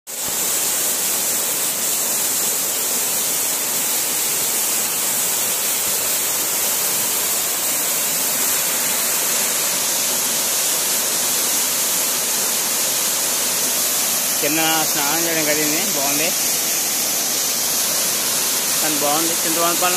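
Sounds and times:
waterfall rushing: 0:00.1 - 0:19.9.

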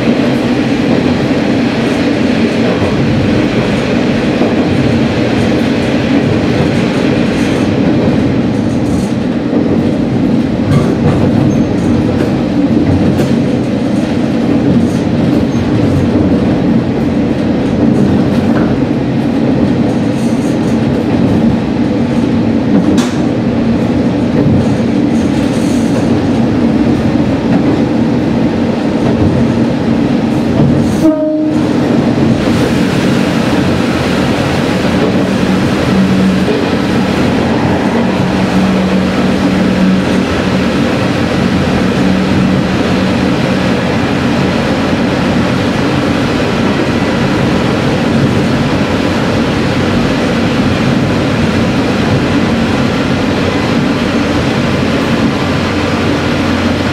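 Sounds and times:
wheels rumbling on rails: 0:00.0 - 0:56.9
diesel engine drone: 0:32.6 - 0:56.9.

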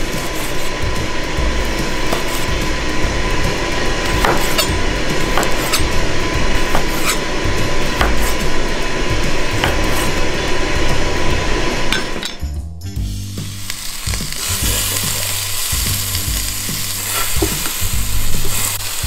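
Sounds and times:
steady hiss: 0:00.0 - 0:12.2, 0:13.0 - 0:19.0
knife chopping on cutting board: 0:01.8 - 0:02.8, 0:04.0 - 0:07.2, 0:07.9 - 0:08.6, 0:09.6 - 0:10.2.

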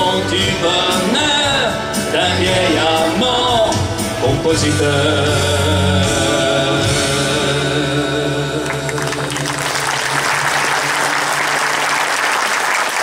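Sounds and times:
audience applause: 0:08.6 - 0:13.0.

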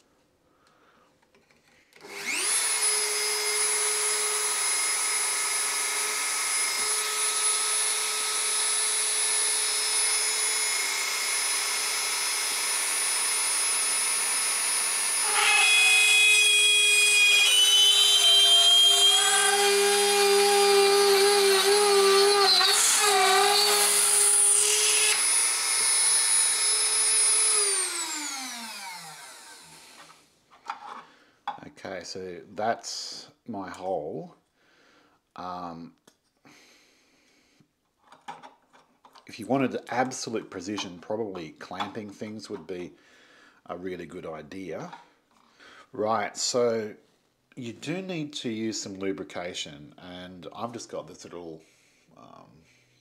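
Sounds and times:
rotary tool whining: 0:02.0 - 0:30.2
drill bit squealing into metal: 0:14.8 - 0:25.8.

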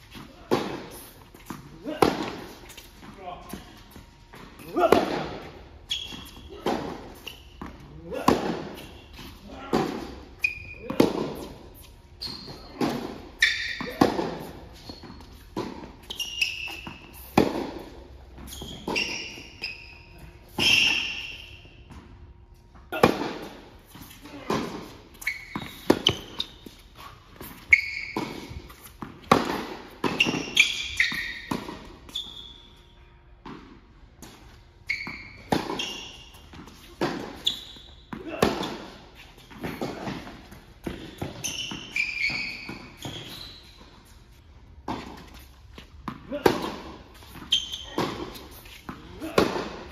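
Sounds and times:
sneaker squeaks: 0:00.0 - 0:49.9
racket striking tennis ball: 0:00.1 - 0:02.8, 0:04.4 - 0:10.2, 0:10.9 - 0:11.6, 0:12.7 - 0:19.5, 0:22.9 - 0:32.1, 0:35.2 - 0:43.4, 0:44.8 - 0:49.9
ball bouncing on court: 0:24.4 - 0:26.6, 0:27.7 - 0:31.9, 0:46.0 - 0:49.9.

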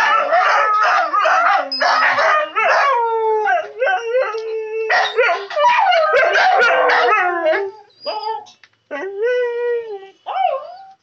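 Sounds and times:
dogs yelping: 0:00.0 - 0:03.0, 0:03.6 - 0:08.5
dogs howling: 0:00.0 - 0:11.0.

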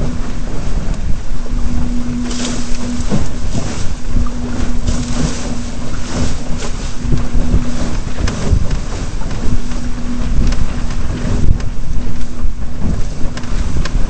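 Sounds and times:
steady low hum: 0:00.0 - 0:14.0
water splashing along hull: 0:00.0 - 0:14.0
wind buffeting microphone: 0:00.0 - 0:14.0.

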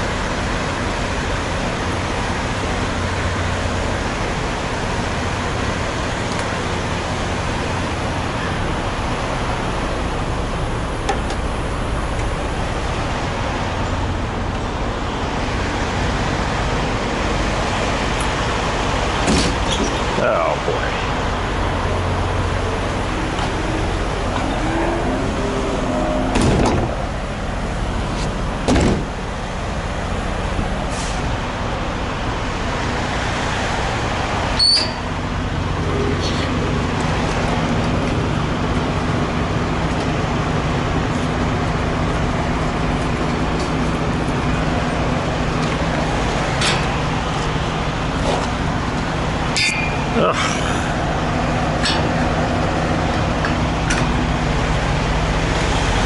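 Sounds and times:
diesel truck idling: 0:00.0 - 0:56.0.

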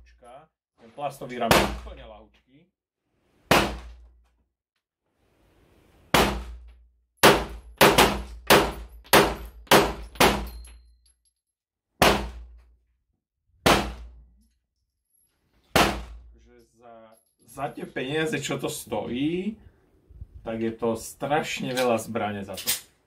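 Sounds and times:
pistol shots: 0:07.2 - 0:10.5.

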